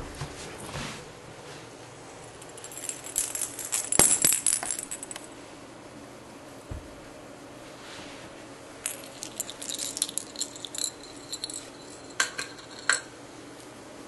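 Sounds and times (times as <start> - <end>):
small bell jingling: 2.4 - 5.2, 8.9 - 13.1.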